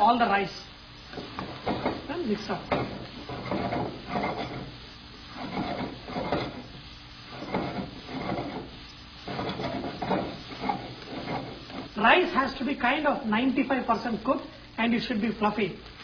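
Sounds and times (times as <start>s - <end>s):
spatula scraping rice in pan: 3.1s - 12.0s.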